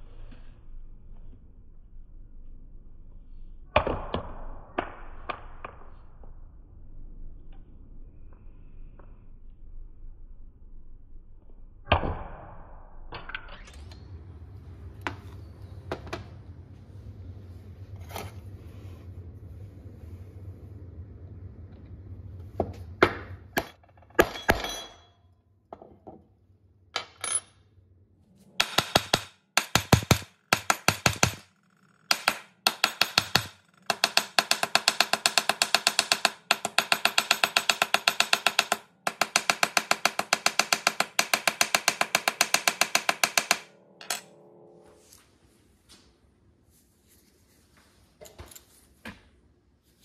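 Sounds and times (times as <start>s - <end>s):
metal hammer tapping rivets: 28.6s - 31.4s.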